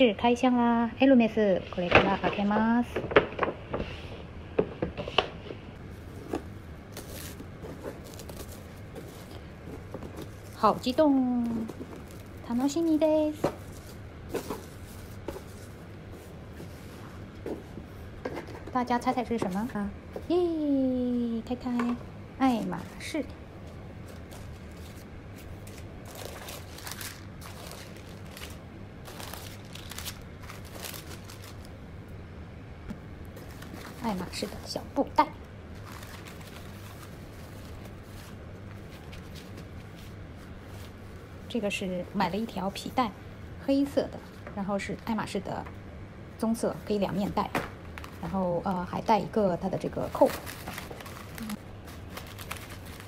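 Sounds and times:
low steady hum: 0.0 - 53.0
tissue paper rustling: 6.1 - 17.1, 24.0 - 31.7, 35.8 - 41.2, 50.0 - 53.0.

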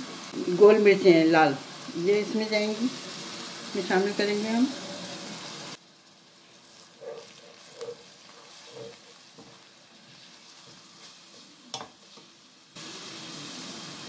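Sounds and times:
hot oil sizzling: 0.0 - 14.0
spatula scraping pot: 6.8 - 12.2.

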